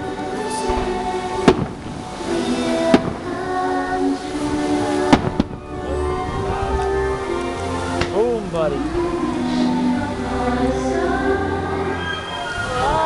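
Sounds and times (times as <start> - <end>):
show music with held notes: 0.0 - 13.0
fireworks bangs: 0.6 - 5.6.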